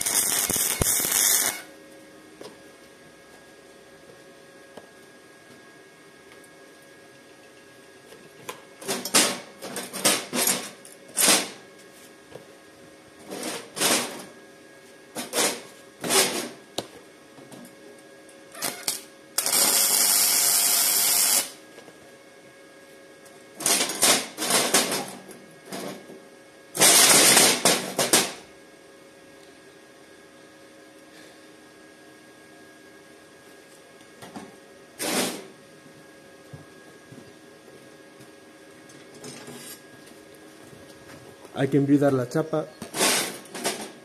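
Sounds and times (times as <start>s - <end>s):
crackling welding arc bursts: 0.0s - 1.7s, 18.5s - 21.6s, 26.8s - 28.4s
sizzling welding runs: 0.0s - 44.0s.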